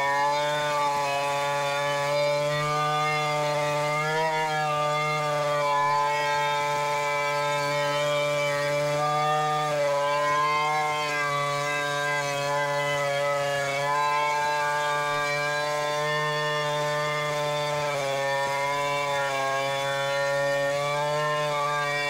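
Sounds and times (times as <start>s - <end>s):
chainsaw cutting log: 0.0s - 22.0s.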